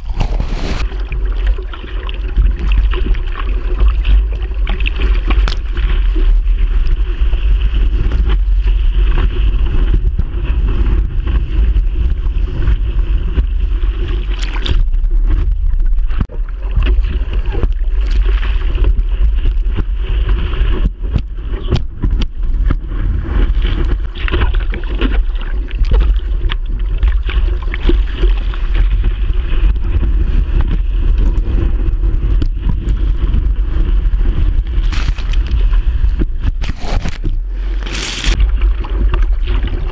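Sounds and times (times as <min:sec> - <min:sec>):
water rushing and splashing: 0:00.0 - 0:10.0, 0:13.6 - 0:20.7, 0:34.2 - 0:39.9
wind buffeting microphone: 0:00.0 - 0:39.9.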